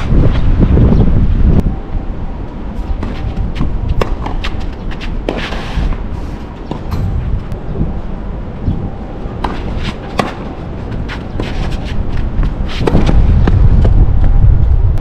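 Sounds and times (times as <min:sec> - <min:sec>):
wind rumble on microphone: 0:00.0 - 0:15.0
racket strings striking ball: 0:06.6 - 0:08.1.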